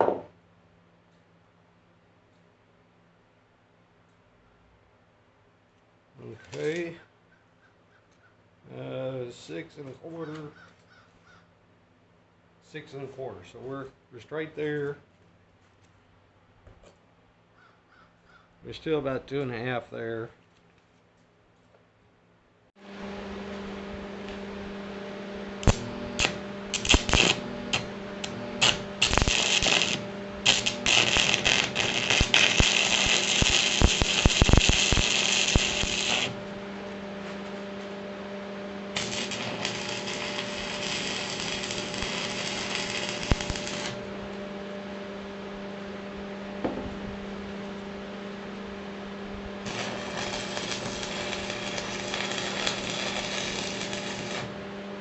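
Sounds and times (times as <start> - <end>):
arc welder crackling: 22.8 - 55.0
electrical hum: 22.8 - 55.0
electrode striking crackles: 25.6 - 36.4, 39.0 - 44.1, 49.6 - 54.5.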